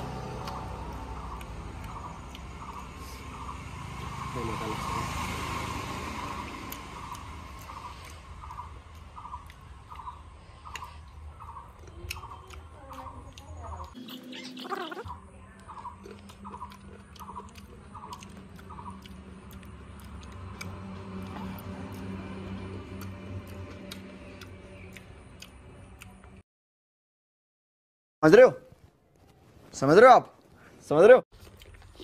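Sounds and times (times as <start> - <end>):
person chewing crunchy mango: 5.1 - 26.4, 31.4 - 32.0.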